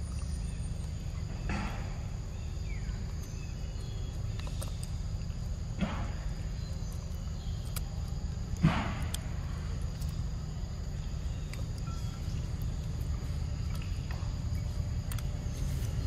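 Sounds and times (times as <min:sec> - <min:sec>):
insect drone: 0:00.0 - 0:16.0
faint chewing clicks: 0:02.6 - 0:05.6, 0:06.6 - 0:16.0.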